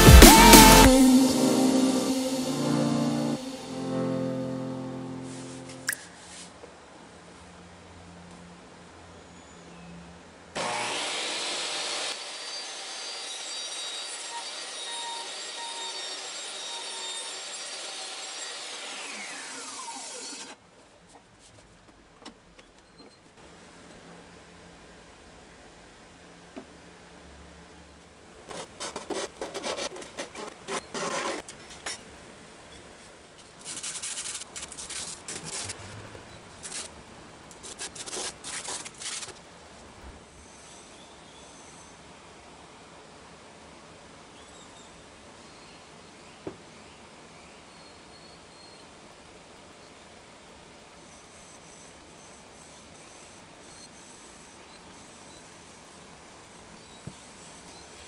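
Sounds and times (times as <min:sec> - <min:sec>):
table saw motor whining: 0:10.6 - 0:20.6
wood sanded on sandpaper: 0:33.6 - 0:35.8, 0:37.6 - 0:39.4.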